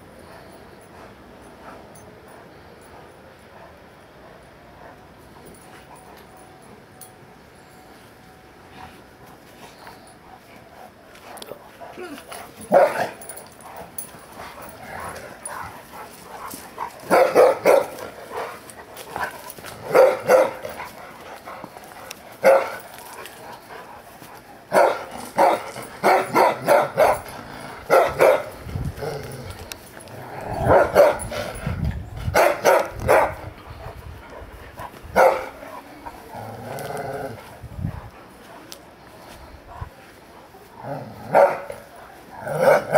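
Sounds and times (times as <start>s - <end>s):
dogs barking: 11.2s - 22.9s, 24.3s - 28.6s, 30.4s - 31.6s, 32.3s - 33.6s, 34.4s - 35.8s, 41.1s - 42.9s.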